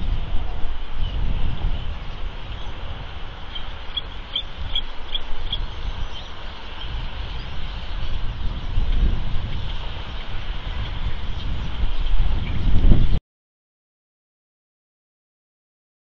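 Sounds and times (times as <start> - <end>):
wind rumble on microphone: 0.0 - 13.2
eagle piping chirps: 3.4 - 8.0.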